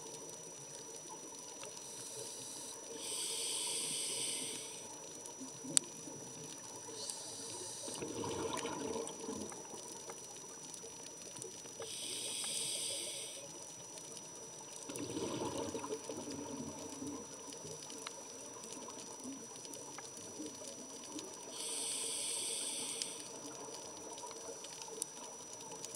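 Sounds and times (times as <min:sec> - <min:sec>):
hissing regulator inhale: 0:01.8 - 0:05.0, 0:06.9 - 0:08.2, 0:11.8 - 0:13.6, 0:21.5 - 0:23.4
rumbling gurgle of exhaled bubbles: 0:07.7 - 0:11.8, 0:14.6 - 0:21.5.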